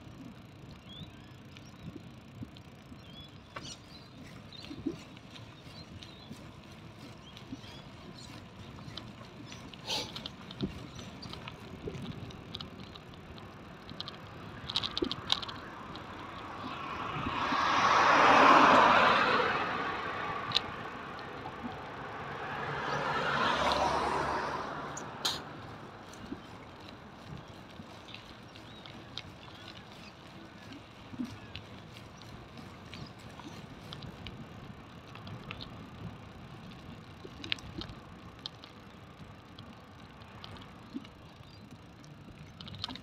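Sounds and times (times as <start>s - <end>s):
bicycle clicks and rattles: 0.0s - 43.0s
vehicles passing: 0.0s - 43.0s.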